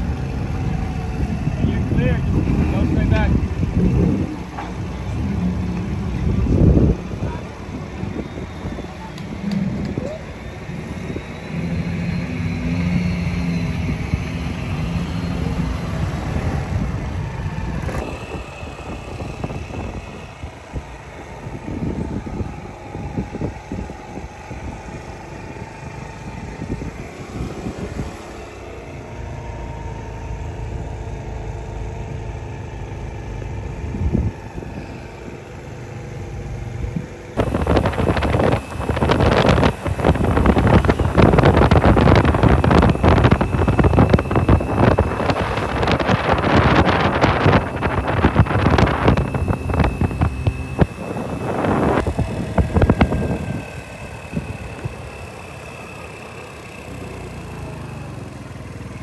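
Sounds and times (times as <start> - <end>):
wind buffeting microphone: 0.0 - 28.6, 33.4 - 55.7
vehicle engines running at low speed: 0.0 - 59.0.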